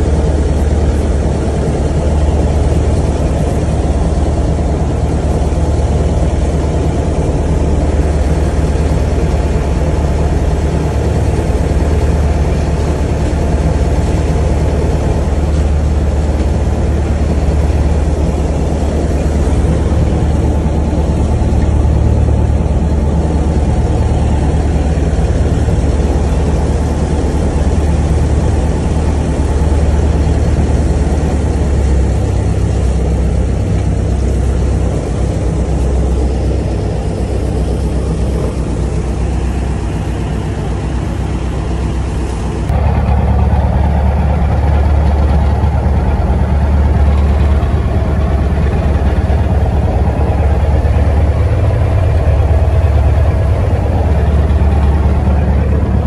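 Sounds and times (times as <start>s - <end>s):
engine droning steadily: 0.0s - 56.0s.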